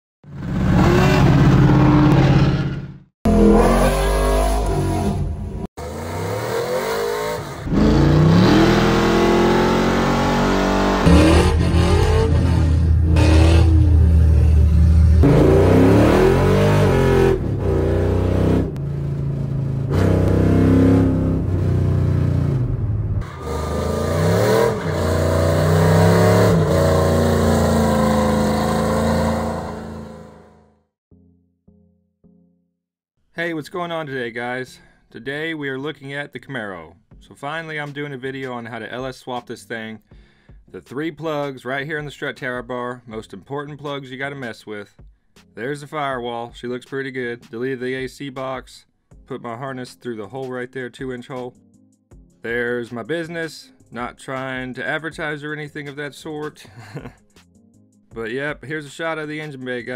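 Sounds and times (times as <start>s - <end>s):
car engines revving: 0.4s - 30.6s.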